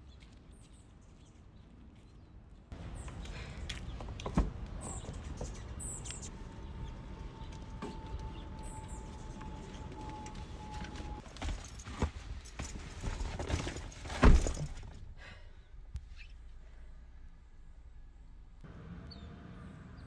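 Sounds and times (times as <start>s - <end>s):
birds chirping: 0.0s - 11.2s, 18.7s - 20.0s.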